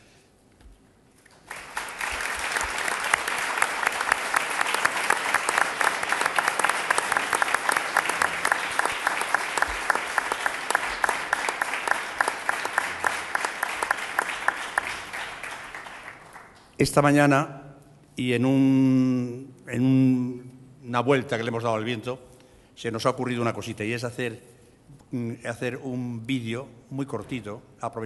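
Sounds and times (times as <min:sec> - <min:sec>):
audience applauding: 0:01.2 - 0:16.8.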